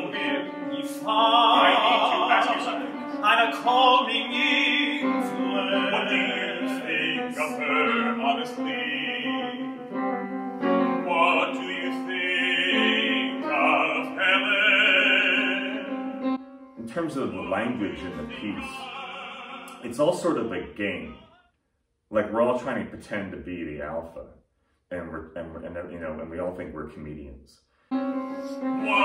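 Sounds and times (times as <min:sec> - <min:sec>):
man singing operatically: 0:00.0 - 0:09.8, 0:10.8 - 0:16.1, 0:16.8 - 0:21.5, 0:28.8 - 0:29.0
piano accompaniment: 0:00.0 - 0:20.1, 0:27.9 - 0:29.0.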